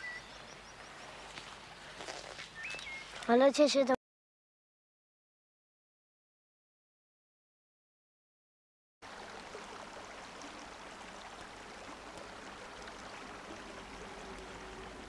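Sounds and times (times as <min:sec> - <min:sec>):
running water: 0:09.0 - 0:15.0.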